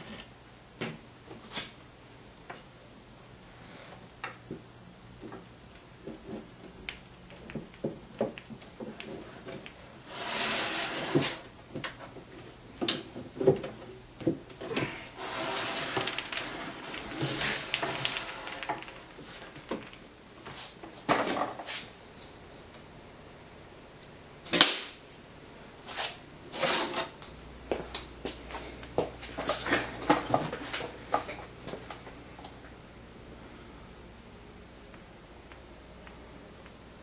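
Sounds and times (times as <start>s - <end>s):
wood sliding and rubbing: 7.3s - 11.4s, 14.6s - 21.9s, 25.9s - 27.2s.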